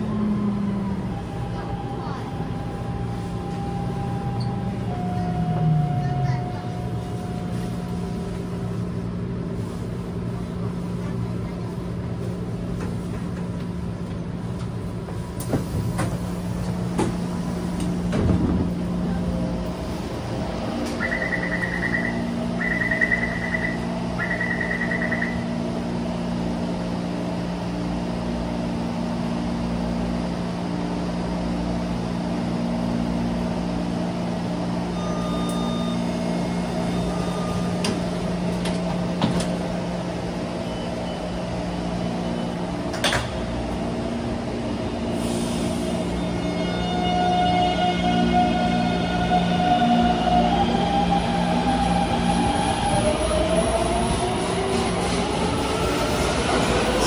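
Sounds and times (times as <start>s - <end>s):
train equipment humming: 0.0s - 57.0s
door-closing warning beeps: 20.9s - 25.4s, 35.0s - 36.2s.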